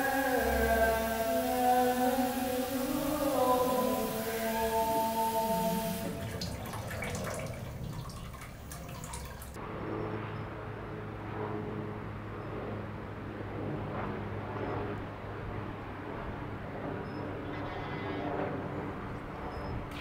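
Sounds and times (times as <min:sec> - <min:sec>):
steady low hum: 0:00.0 - 0:20.0
tap water splashing into basin: 0:06.0 - 0:09.6.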